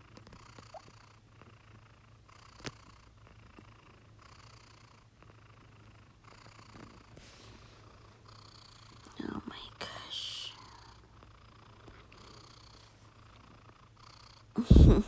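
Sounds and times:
cat snoring: 0:00.2 - 0:15.0.

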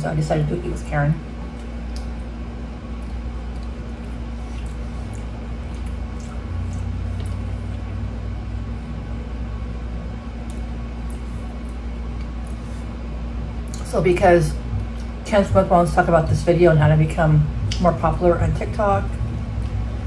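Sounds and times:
steady low hum: 0:00.0 - 0:20.0
soft chewing: 0:01.3 - 0:08.0, 0:10.4 - 0:13.9, 0:14.7 - 0:15.2.

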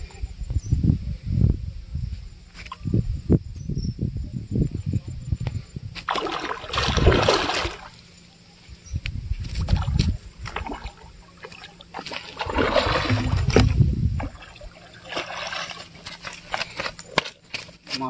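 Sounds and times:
fish splashing in water: 0:06.0 - 0:08.0, 0:09.6 - 0:16.6.

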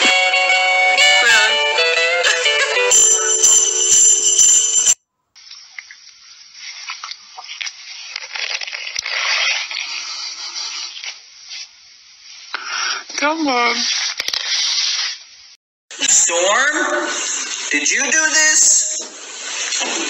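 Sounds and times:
music with held notes: 0:00.0 - 0:05.0.

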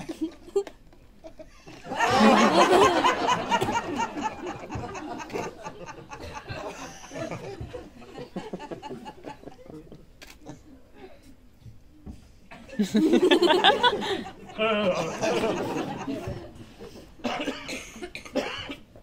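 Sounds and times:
audience laughing: 0:01.6 - 0:10.0, 0:12.7 - 0:17.5.

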